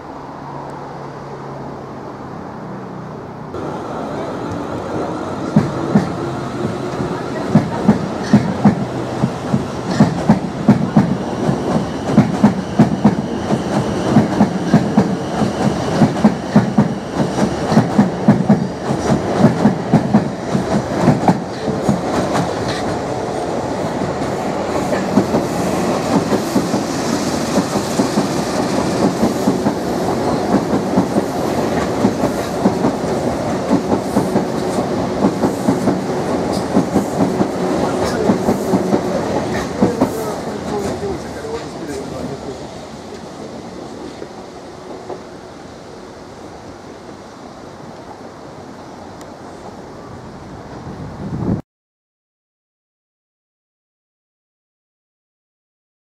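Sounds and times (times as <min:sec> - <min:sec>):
train rumble: 0:00.0 - 0:51.6
train wheels clattering over rail joints: 0:05.4 - 0:23.1, 0:24.1 - 0:42.4.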